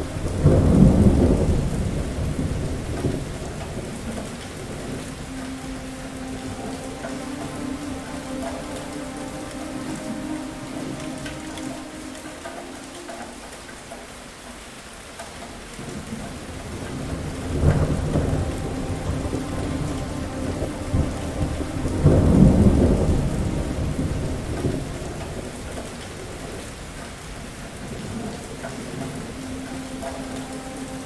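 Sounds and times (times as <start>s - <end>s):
rolling thunder: 0.0s - 6.8s, 15.8s - 26.7s
heavy rain: 0.0s - 31.0s.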